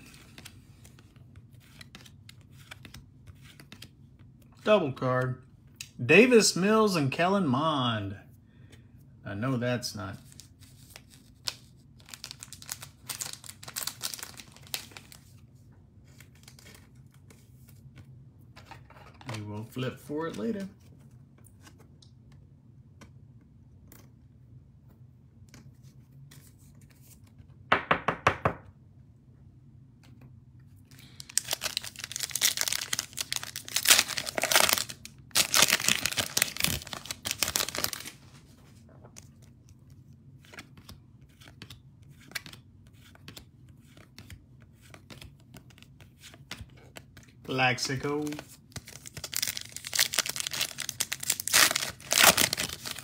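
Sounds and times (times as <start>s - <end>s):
cards being handled: 0.0s - 6.0s, 10.1s - 24.2s, 25.4s - 27.5s, 30.0s - 53.0s
plastic wrapper tearing and crinkling: 10.9s - 15.2s, 31.2s - 38.2s, 48.3s - 53.0s.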